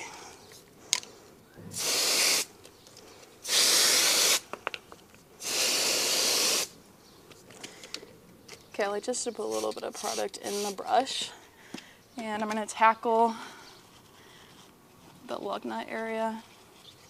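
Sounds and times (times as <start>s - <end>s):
pressure sprayer hissing: 1.7s - 2.5s, 3.4s - 4.5s, 5.4s - 6.7s, 9.5s - 10.8s.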